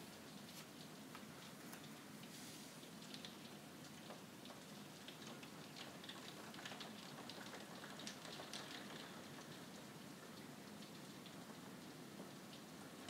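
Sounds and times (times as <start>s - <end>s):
light rain hiss: 0.0s - 13.0s
raindrops ticking: 3.0s - 9.8s.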